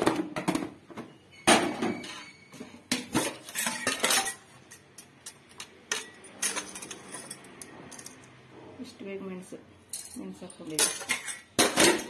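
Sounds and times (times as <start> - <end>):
spoon clinking against metal cups: 1.9 - 8.4, 9.9 - 12.0.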